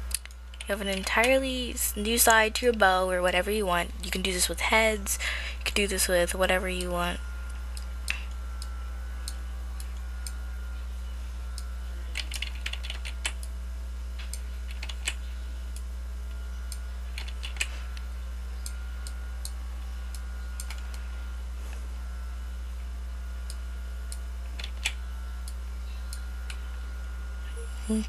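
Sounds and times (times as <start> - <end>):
low electrical hum: 0.0 - 28.0
keyboard keys clicking: 12.1 - 13.4, 14.7 - 15.2, 17.2 - 17.7.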